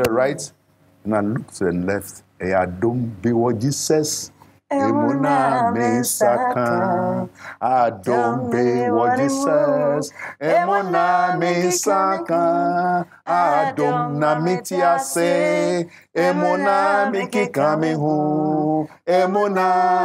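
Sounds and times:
woman singing: 4.7 - 7.3, 8.0 - 12.4
man singing: 4.8 - 20.0.

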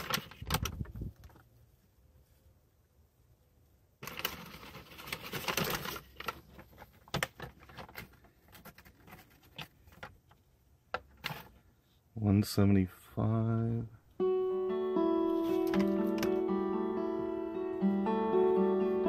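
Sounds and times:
paper crinkling and rustling: 0.0 - 1.5, 4.0 - 10.4, 15.3 - 16.4.

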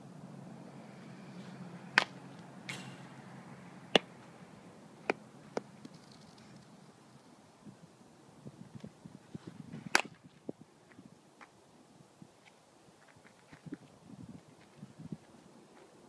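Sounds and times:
bat hitting softball: 1.8 - 3.3, 3.9 - 4.2, 9.9 - 10.2.

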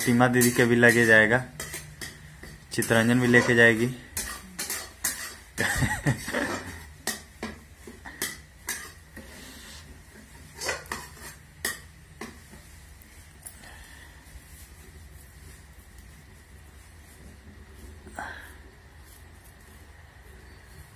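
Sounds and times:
metal utensils and dishes clinking: 0.0 - 7.4, 8.0 - 9.3, 10.3 - 11.9.

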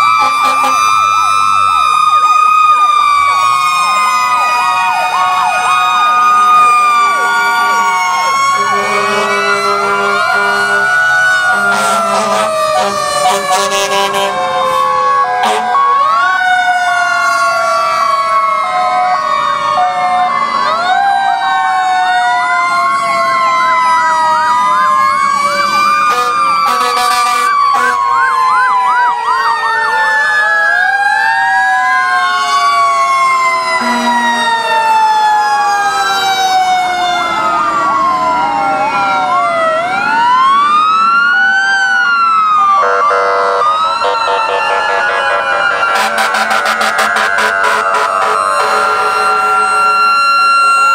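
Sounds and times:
mechanical siren winding down: 0.0 - 13.6, 14.3 - 50.9
electronic siren wails and yelps: 0.0 - 50.9
horn-like tones: 8.6 - 10.9, 11.5 - 14.5, 15.4 - 15.8, 26.1 - 28.0, 33.8 - 34.8, 45.9 - 50.0.

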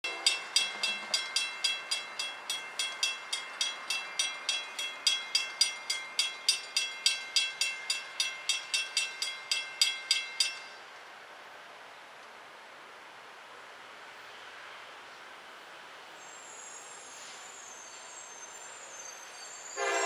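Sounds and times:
railroad crossing bell ringing: 0.0 - 10.9, 19.2 - 20.0.

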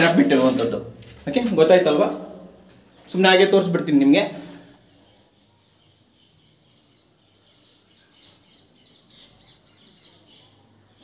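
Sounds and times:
steady high hiss: 0.0 - 9.8
faint high-pitched chirping: 4.0 - 11.0.

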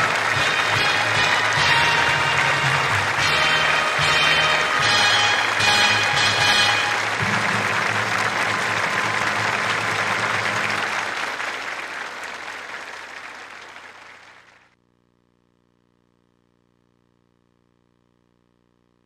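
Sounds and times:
crowd applauding: 0.0 - 14.7.

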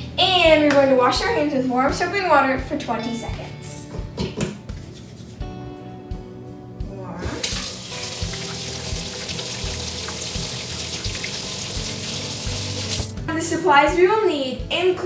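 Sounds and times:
light background music: 0.0 - 15.0
faucet water into steel sink: 7.4 - 13.1
hands washing under water: 7.4 - 13.1.

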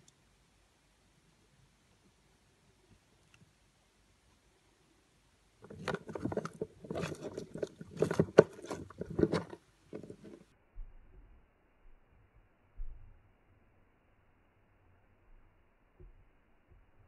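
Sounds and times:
rustling and scraping in plastic enclosure: 5.6 - 10.5.

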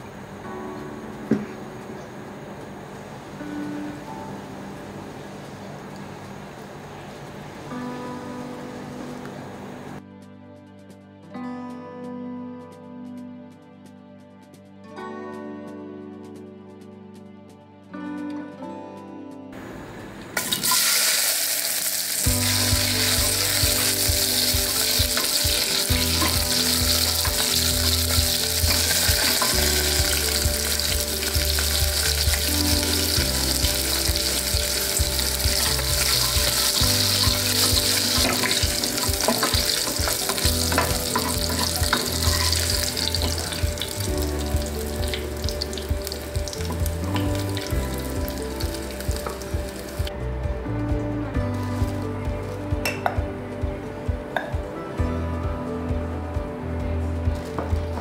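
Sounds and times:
okra sizzling in hot oil: 20.4 - 50.1.

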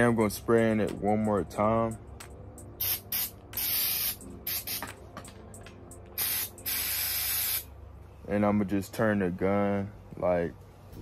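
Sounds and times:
aerosol spray can hissing: 2.8 - 5.0, 6.2 - 7.7.

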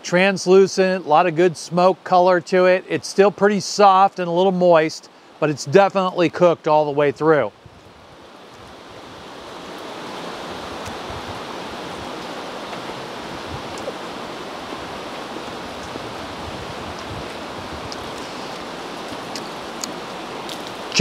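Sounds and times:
steady outdoor rushing noise: 8.2 - 21.0
faint ticks: 16.9 - 20.8.

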